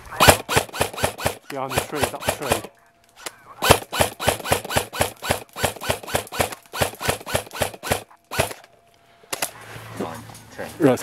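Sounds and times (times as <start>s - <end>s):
airsoft gun firing: 0.1s - 2.7s, 3.6s - 8.6s.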